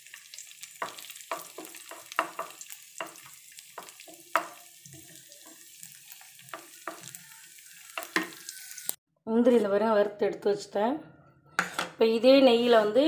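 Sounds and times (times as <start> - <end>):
nuts frying with faint sizzle: 0.0 - 9.0
wooden spatula scraping a pan: 11.6 - 12.0.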